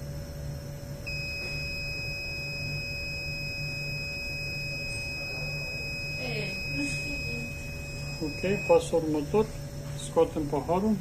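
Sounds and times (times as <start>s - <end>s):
low steady hum: 0.0s - 11.0s
high-pitched electronic beep: 1.1s - 9.1s.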